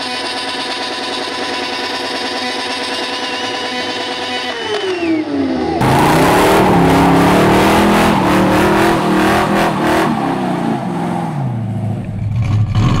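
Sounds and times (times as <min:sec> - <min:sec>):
engine revving high: 0:03.6 - 0:13.0.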